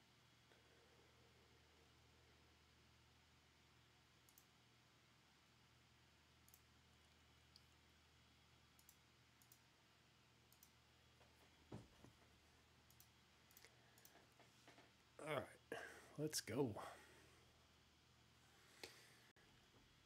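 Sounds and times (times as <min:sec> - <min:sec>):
faint room hum: 0:00.0 - 0:20.0
soft clicks: 0:04.2 - 0:04.5, 0:06.4 - 0:06.7, 0:08.7 - 0:09.7, 0:10.5 - 0:11.3, 0:12.8 - 0:14.9.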